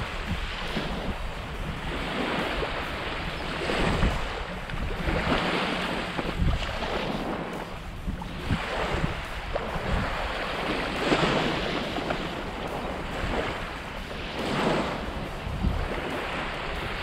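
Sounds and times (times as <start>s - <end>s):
small waves washing onto shore: 0.0s - 17.0s
wind buffeting microphone: 0.0s - 17.0s.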